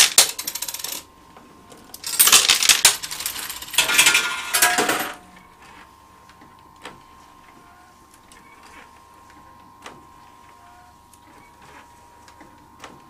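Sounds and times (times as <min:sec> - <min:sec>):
coins clattering in arcade machine: 0:00.0 - 0:01.1, 0:01.9 - 0:05.3
faint machine whine: 0:00.2 - 0:12.7.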